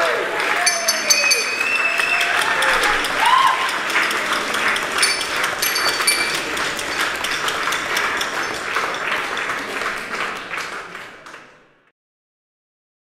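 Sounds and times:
audience applauding: 0.0 - 11.9
short high tones: 0.6 - 2.4.

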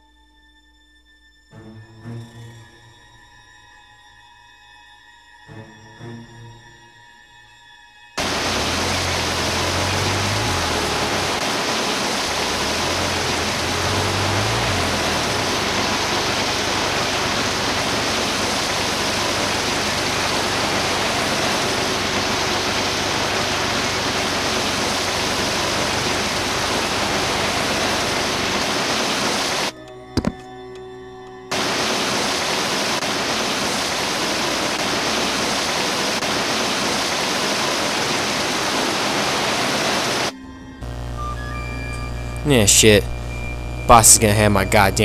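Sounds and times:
loud rushing hiss: 8.2 - 29.7, 31.5 - 40.3
low hum: 8.2 - 29.7, 40.6 - 45.0.

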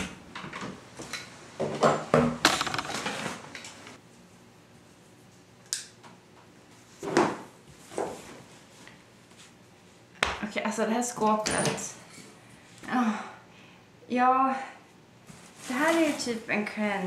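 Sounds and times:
household objects knocking and rattling: 1.6 - 3.4.

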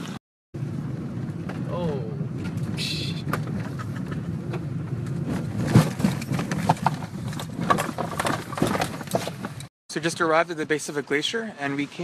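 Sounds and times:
car road rumble: 0.0 - 9.7
car jolting knocks and thumps: 2.4 - 9.7.

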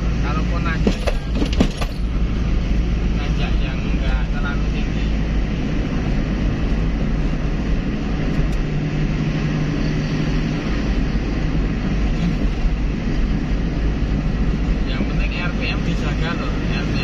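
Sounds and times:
car engine drone: 0.0 - 17.0
road rumble: 0.0 - 17.0.

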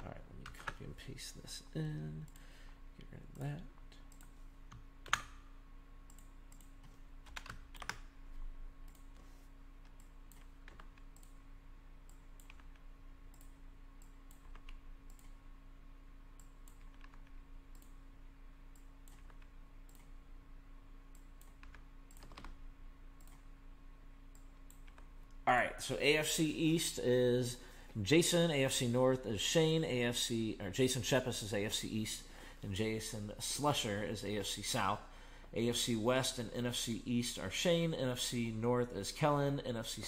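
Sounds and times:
steady low hum: 0.0 - 40.0
keyboard keystrokes: 6.1 - 8.1, 21.4 - 22.6.

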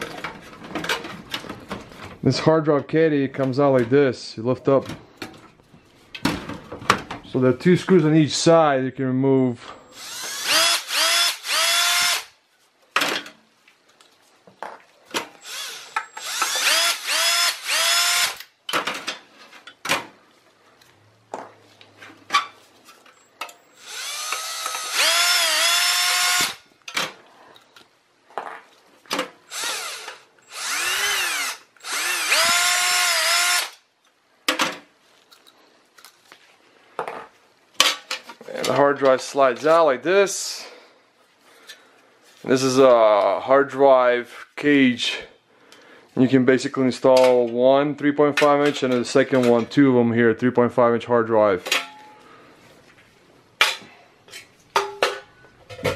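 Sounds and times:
cordless drill motor whine: 9.8 - 12.3, 15.4 - 18.4, 23.8 - 26.6, 29.5 - 33.7.

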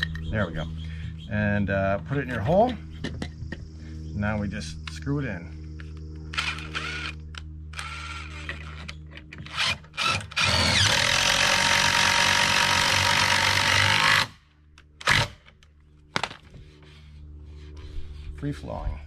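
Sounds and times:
cordless drill driving screw into wood: 7.8 - 14.4, 15.0 - 15.5.

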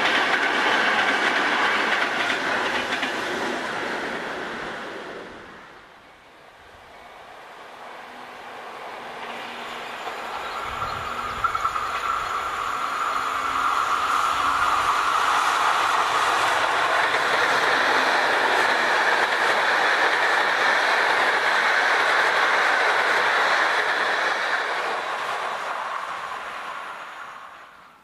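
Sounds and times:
wheels clickety-clack on rails: 0.0 - 4.4, 9.1 - 27.1
train passing at speed: 0.0 - 28.0.

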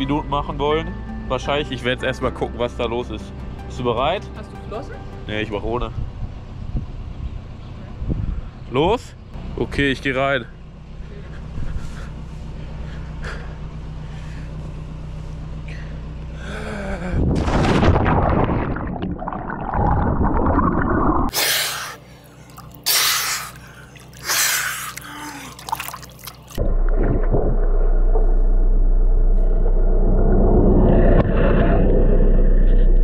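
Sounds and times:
boat engine idling: 1.2 - 17.2, 21.3 - 26.9
person gasping and sputtering: 15.8 - 17.4, 21.3 - 26.5
underwater bubbles rushing: 17.4 - 21.3, 23.6 - 33.0
loud splash into water: 17.4 - 21.9
water splashing: 17.4 - 27.8.

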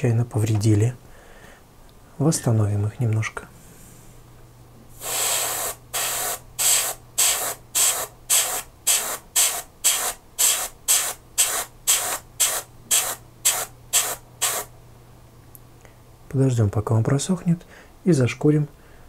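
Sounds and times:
airbrush spraying bursts: 5.0 - 14.7.

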